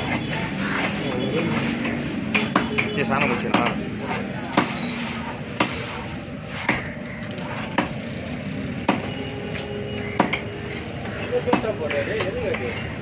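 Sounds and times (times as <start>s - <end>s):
knife chopping on wooden block: 7.6s - 8.0s, 10.2s - 10.4s.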